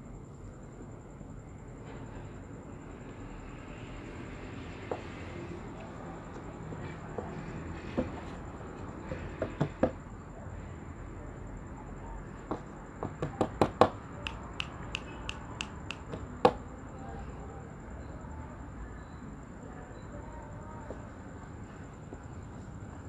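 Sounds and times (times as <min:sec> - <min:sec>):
low background noise: 0:00.0 - 0:23.0
kitten clicking on plastic: 0:13.2 - 0:16.6
hand patting: 0:13.6 - 0:16.6.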